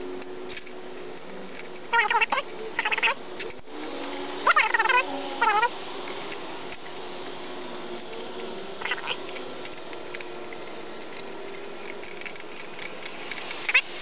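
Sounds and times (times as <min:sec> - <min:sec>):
outdoor background hiss: 0:00.0 - 0:14.0
tool clicks and scrapes on engine: 0:06.1 - 0:14.0.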